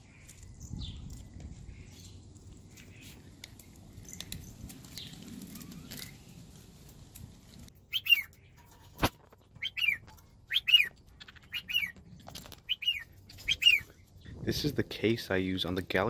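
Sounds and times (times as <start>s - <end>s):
parrots chirping: 7.8s - 8.6s, 9.6s - 12.0s, 12.6s - 14.0s.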